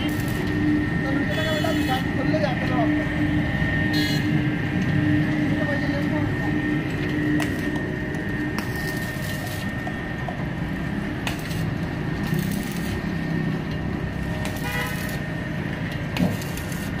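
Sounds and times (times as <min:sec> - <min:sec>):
road traffic rumble: 0:00.0 - 0:17.0
vehicle horn: 0:01.3 - 0:02.0, 0:03.9 - 0:04.4, 0:14.5 - 0:15.2.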